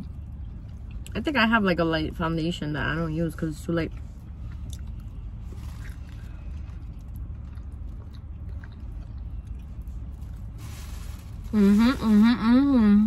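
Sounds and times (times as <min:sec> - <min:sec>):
steady low hum: 0:00.0 - 0:13.0
chewing and biting: 0:04.2 - 0:10.5.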